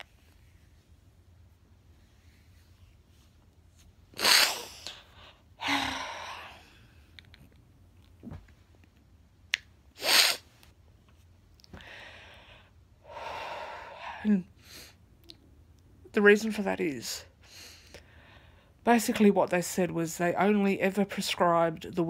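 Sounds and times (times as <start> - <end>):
sharp sniffs: 4.2 - 4.9, 10.0 - 10.5.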